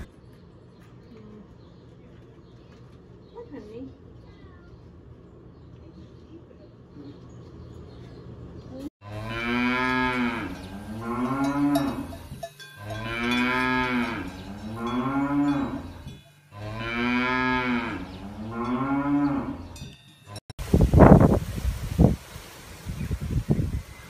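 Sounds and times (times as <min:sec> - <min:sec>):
cows mooing: 0:09.0 - 0:19.8
cowbells clinking: 0:10.1 - 0:20.5.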